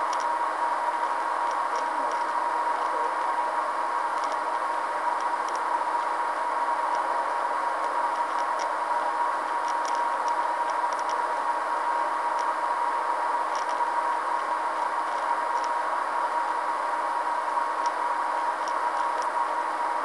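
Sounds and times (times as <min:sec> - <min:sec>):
faint irregular ticks: 0:00.0 - 0:00.4, 0:01.0 - 0:03.3, 0:04.1 - 0:04.6, 0:05.2 - 0:06.1, 0:07.8 - 0:08.8, 0:09.4 - 0:11.3, 0:13.5 - 0:13.9, 0:15.0 - 0:15.8, 0:17.8 - 0:19.4
constant high tone: 0:01.5 - 0:03.5.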